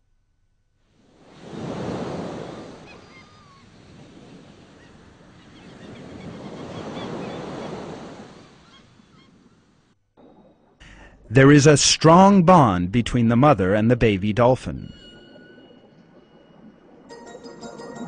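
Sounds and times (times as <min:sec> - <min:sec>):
ocean surf washing in: 0:01.1 - 0:09.8.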